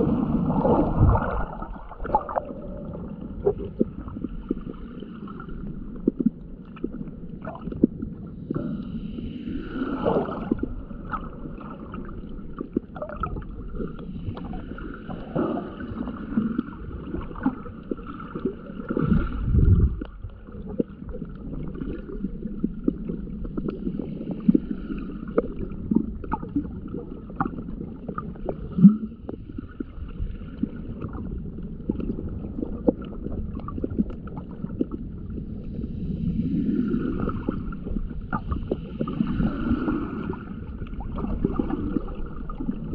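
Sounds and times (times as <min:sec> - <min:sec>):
low water rush: 0:00.0 - 0:05.9, 0:08.7 - 0:23.1
underwater sloshing and gurgling: 0:00.0 - 0:42.9
small underwater clicks: 0:30.6 - 0:35.4.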